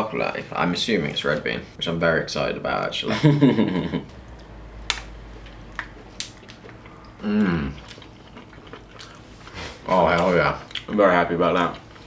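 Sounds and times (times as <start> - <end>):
man murmuring: 7.2 - 7.8.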